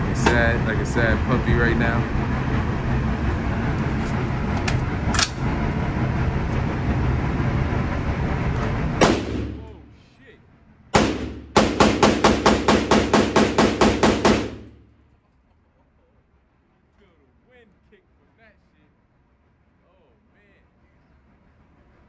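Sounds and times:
rifle shots echoing indoors: 9.0 - 9.6, 10.9 - 14.8.

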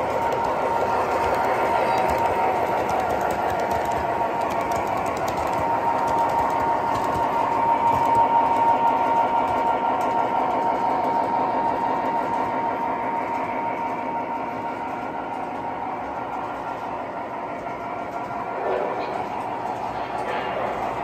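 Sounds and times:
wheels clattering on rail: 0.0 - 13.6
model locomotive whine: 0.0 - 21.0.

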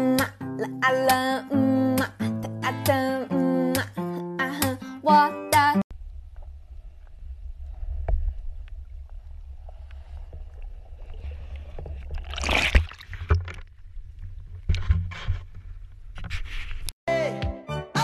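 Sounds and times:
underwater low rumble: 5.9 - 12.4
bubbly water rush: 6.5 - 14.6.

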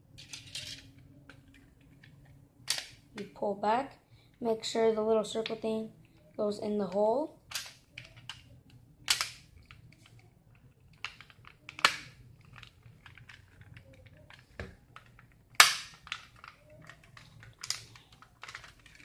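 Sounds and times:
plastic clicks and rattles: 0.2 - 3.3, 7.5 - 19.0
sharp plastic snaps: 7.5 - 10.3, 10.9 - 19.0.

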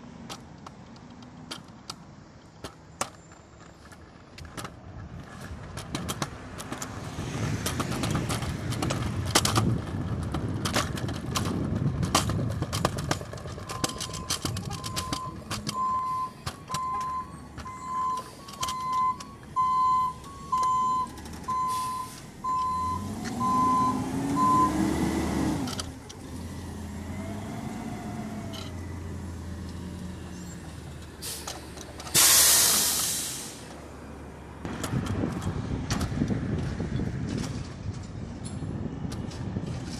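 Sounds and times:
truck engine revving: 11.5 - 33.7
truck backup alarm beeping: 13.7 - 25.1
air brake hiss: 31.2 - 33.8.

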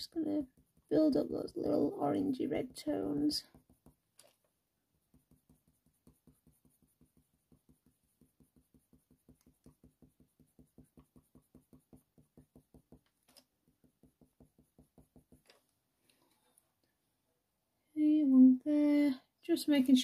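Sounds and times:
pencil scratching on paper: 0.2 - 4.0, 4.9 - 13.1, 13.8 - 15.6.

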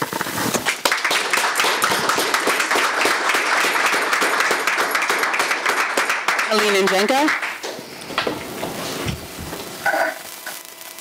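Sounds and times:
small group clapping: 0.1 - 8.4.

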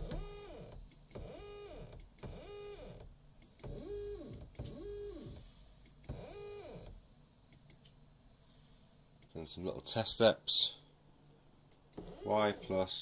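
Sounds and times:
stepper motor whines: 0.0 - 9.3.

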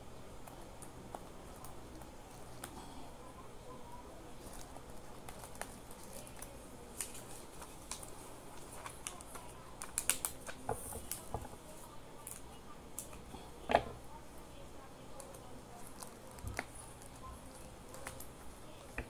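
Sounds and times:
hands handling craft materials: 15.2 - 19.0.

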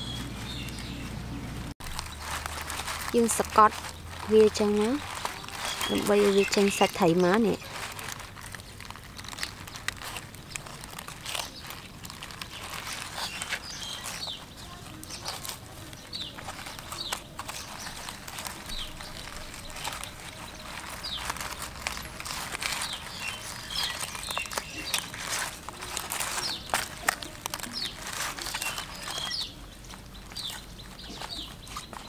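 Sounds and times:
high bird chirps: 0.0 - 1.2, 27.7 - 32.0.

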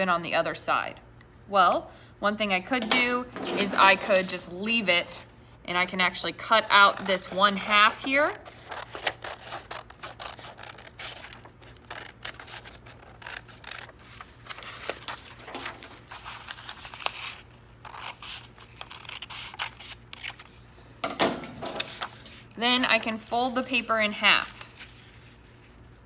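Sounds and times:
scissors snipping paper: 6.7 - 20.4
paper rustling: 6.8 - 20.7, 21.6 - 22.5, 24.4 - 26.0.

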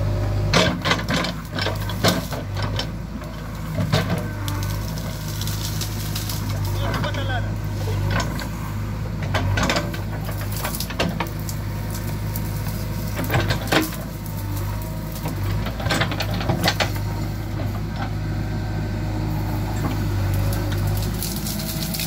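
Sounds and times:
diesel engine running: 0.0 - 22.0
branches cracking: 4.0 - 8.4, 9.4 - 17.2, 20.0 - 22.0.

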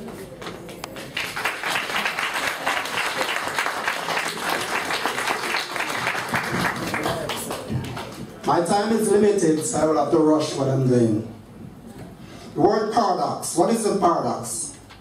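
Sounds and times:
audience applauding: 0.6 - 8.4.

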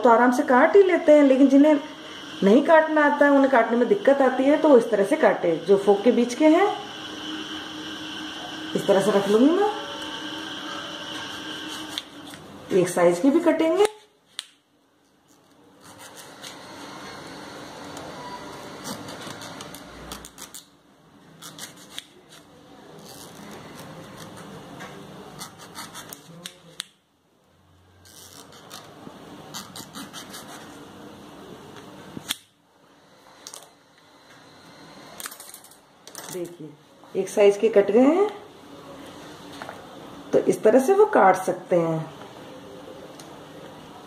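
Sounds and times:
knife sawing through tomato: 15.8 - 16.6, 25.4 - 26.4, 29.5 - 30.8.

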